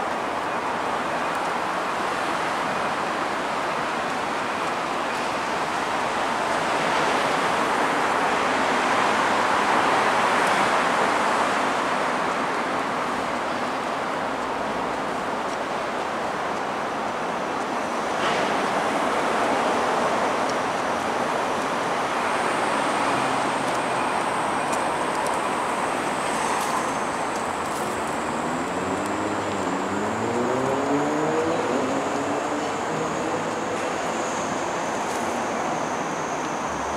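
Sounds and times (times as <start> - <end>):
road traffic hiss and rumble: 0.0 - 36.9
vehicle engine rising in pitch: 28.2 - 33.7.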